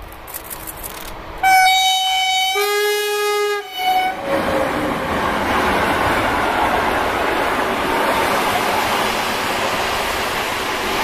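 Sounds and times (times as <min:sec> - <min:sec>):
train passing close by: 0:00.0 - 0:11.0
locomotive horn: 0:01.4 - 0:04.3.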